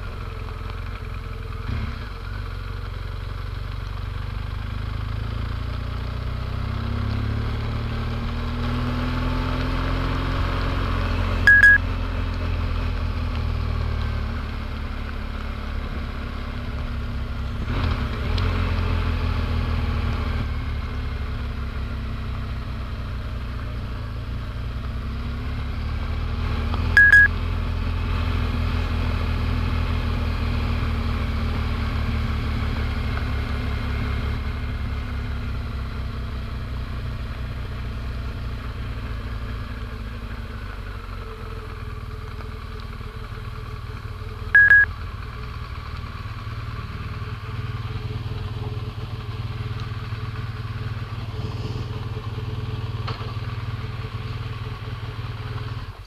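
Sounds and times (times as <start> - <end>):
short electronic beeps: 11.5 - 11.9, 26.9 - 27.3, 44.6 - 44.9
motorcycle engine rumbling: 39.7 - 56.0.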